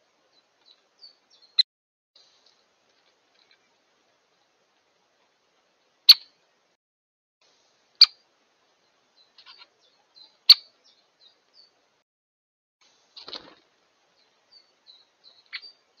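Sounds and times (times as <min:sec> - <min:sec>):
woodpecker sharp kik calls: 0:06.1 - 0:06.4, 0:08.0 - 0:08.2, 0:09.2 - 0:11.7, 0:14.5 - 0:15.8.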